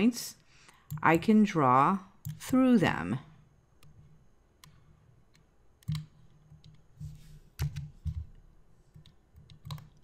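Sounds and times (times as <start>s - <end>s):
computer mouse clicks: 0.6s - 1.3s, 2.2s - 2.7s, 3.8s - 10.0s.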